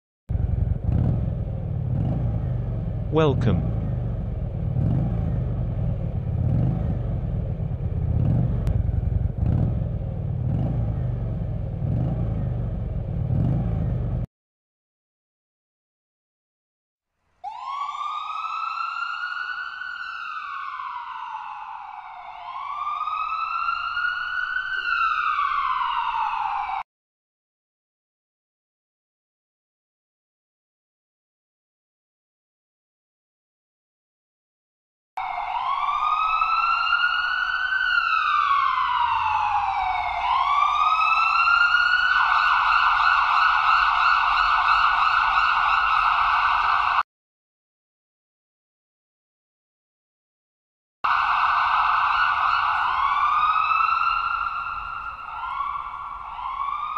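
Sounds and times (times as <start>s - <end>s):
ambulance siren wailing: 0.3s - 14.3s, 17.4s - 26.8s, 35.2s - 47.0s, 51.1s - 56.9s.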